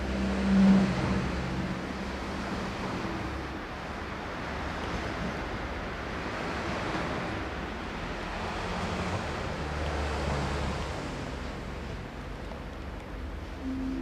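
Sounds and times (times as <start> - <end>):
distant traffic: 0.0 - 14.0
low hum: 13.4 - 14.0.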